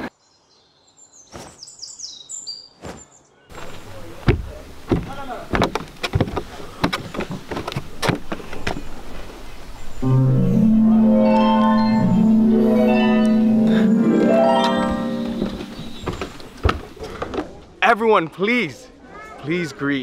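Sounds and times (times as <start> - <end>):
outdoor ambience: 0.0 - 19.8
bare feet on wooden deck: 1.3 - 1.8, 2.7 - 10.0, 13.6 - 17.8.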